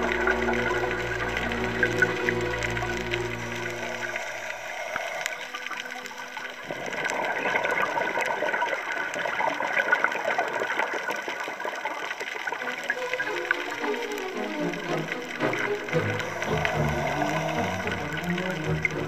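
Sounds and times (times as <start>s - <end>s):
background music: 0.0s - 4.4s, 12.6s - 19.0s
underwater crackle: 0.0s - 19.0s
water bubbling and gurgling: 0.0s - 19.0s.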